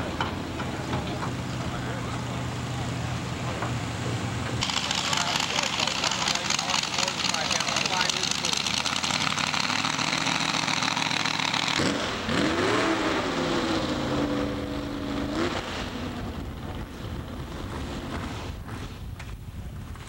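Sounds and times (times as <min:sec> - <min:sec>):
engine revving: 0:04.6 - 0:18.6.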